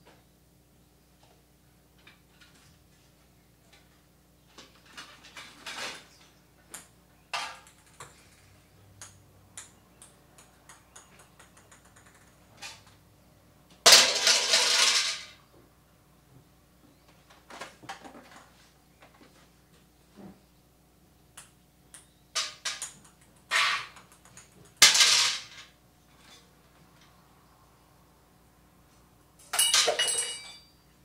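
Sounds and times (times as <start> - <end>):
clicks and clattering objects: 4.5 - 8.4, 13.9 - 15.4, 21.4 - 27.2, 29.4 - 30.7.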